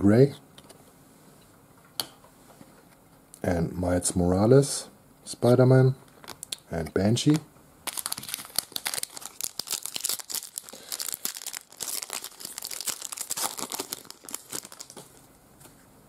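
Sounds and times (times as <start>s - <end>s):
foil wrapper tearing and crinkling: 7.9s - 15.2s.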